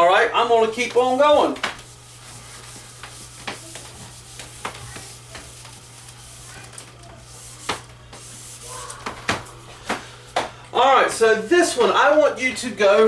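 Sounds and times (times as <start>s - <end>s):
eraser rubbing on whiteboard: 0.8s - 8.9s.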